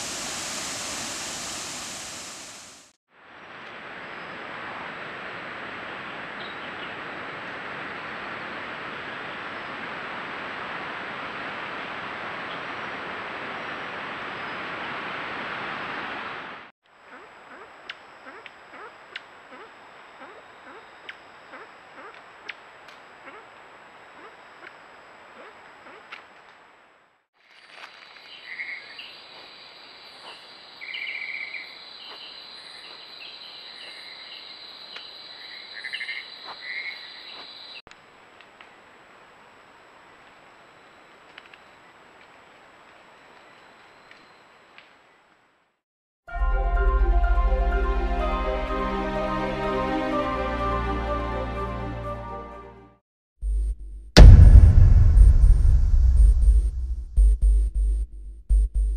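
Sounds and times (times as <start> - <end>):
night forest rushing hiss: 0.0 - 45.6.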